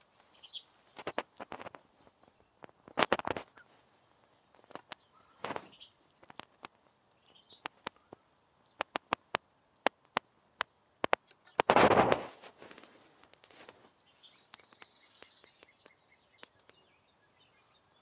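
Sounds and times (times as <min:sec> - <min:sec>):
rustling scuffle: 0:11.6 - 0:14.0.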